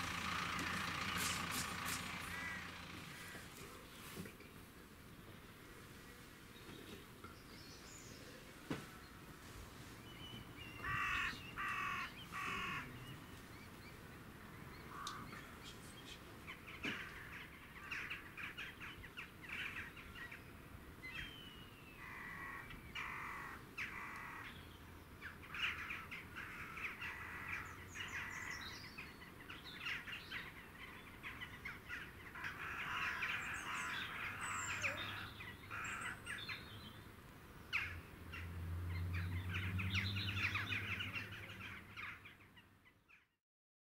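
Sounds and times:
crows cawing: 0:01.8 - 0:03.6, 0:10.8 - 0:13.1, 0:14.9 - 0:15.4, 0:16.8 - 0:18.7, 0:22.0 - 0:24.6, 0:25.5 - 0:28.8, 0:31.6 - 0:36.4.

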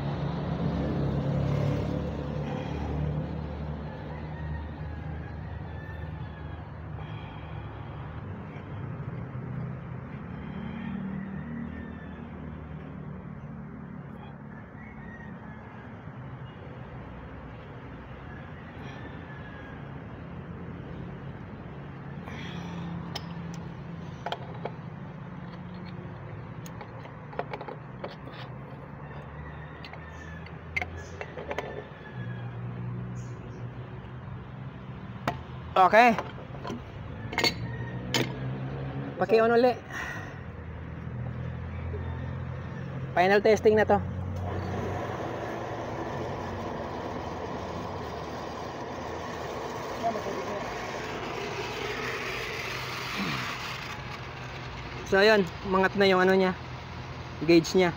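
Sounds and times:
electric water pump whirring: 0:44.4 - 0:56.0.

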